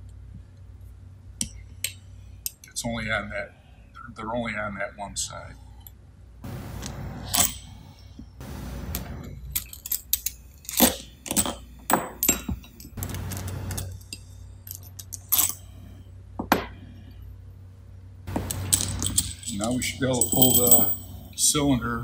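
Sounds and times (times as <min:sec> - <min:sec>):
low steady hum: 0:00.0 - 0:22.0
metal parts clinking: 0:09.2 - 0:15.7, 0:18.4 - 0:21.4.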